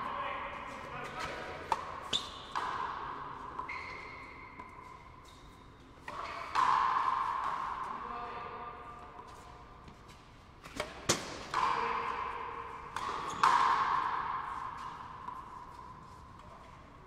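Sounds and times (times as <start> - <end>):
ball smacking wall with echo: 0.1 - 5.2, 6.0 - 16.8.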